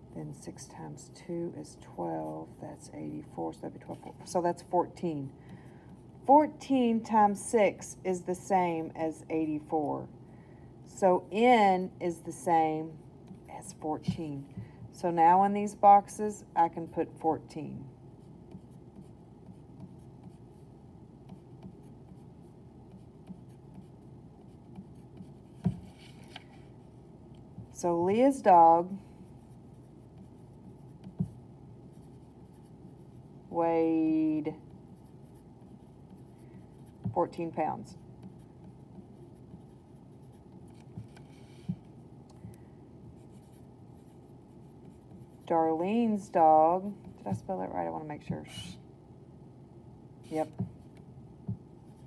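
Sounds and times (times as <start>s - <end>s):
pencil scratching on paper: 18.2s - 26.4s, 28.1s - 41.8s
pencil point tapping: 29.8s - 32.7s.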